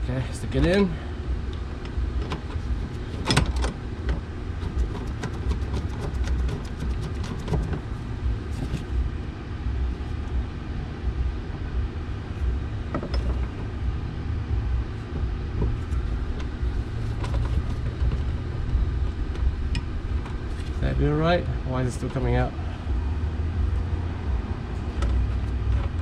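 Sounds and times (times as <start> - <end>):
low rumble: 7.6 - 26.0.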